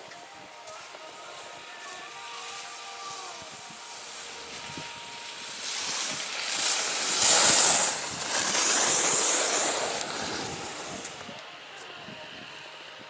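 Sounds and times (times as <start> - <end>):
skis scraping over packed snow: 0.0 - 11.9
wind on microphone: 2.5 - 13.0.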